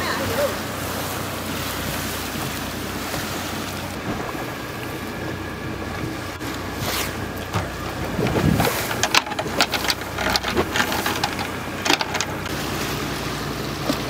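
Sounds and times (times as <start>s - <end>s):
boat engine hum: 0.0s - 14.0s
rushing water: 0.0s - 14.0s
wind on microphone: 7.9s - 9.5s.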